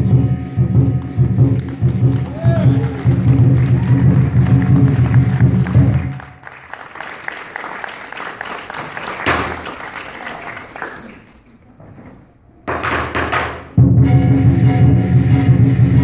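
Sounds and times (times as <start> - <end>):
lion dance percussion: 0.1 - 6.4
audience applause: 1.2 - 11.6.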